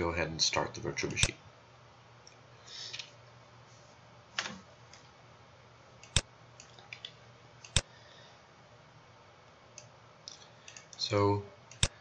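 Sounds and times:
computer mouse clicks: 0:06.0 - 0:07.9, 0:09.7 - 0:11.0, 0:11.7 - 0:12.0.

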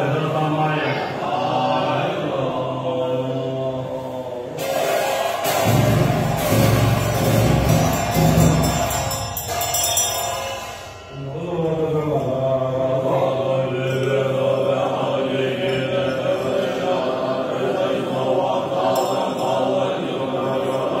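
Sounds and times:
monks chanting in unison: 0:00.0 - 0:21.0.

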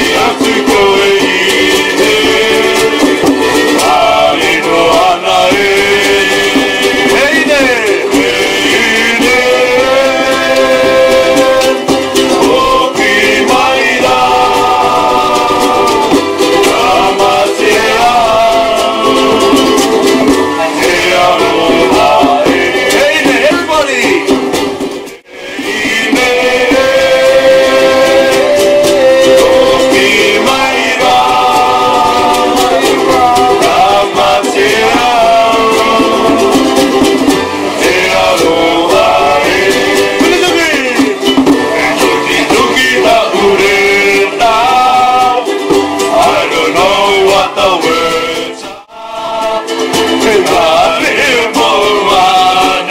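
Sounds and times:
men singing: 0:00.0 - 0:24.5, 0:25.2 - 0:52.9
ukulele strumming: 0:00.0 - 0:52.9
hand drum tapping: 0:40.2 - 0:42.8.

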